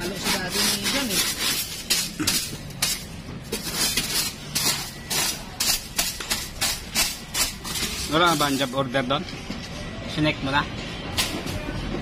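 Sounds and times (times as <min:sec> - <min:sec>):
hard objects clinking and knocking: 0:00.0 - 0:09.8.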